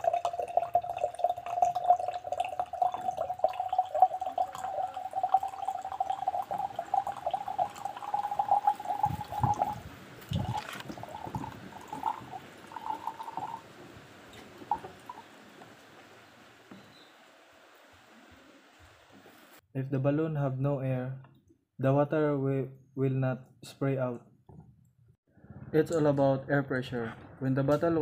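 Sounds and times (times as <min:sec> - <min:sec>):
water spurting from straw: 0:00.0 - 0:19.6.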